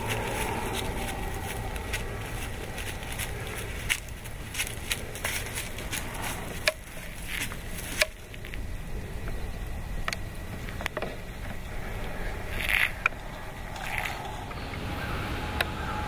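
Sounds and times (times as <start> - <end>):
rustle in brush: 0.0 - 8.0
crunching in dry leaves: 0.0 - 9.0, 11.8 - 14.5
steady low rumble: 0.0 - 16.0.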